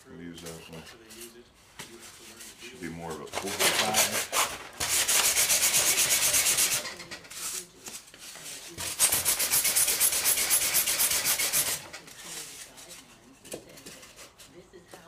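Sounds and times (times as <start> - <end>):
foam being sanded by hand: 3.5 - 6.9, 8.8 - 11.9.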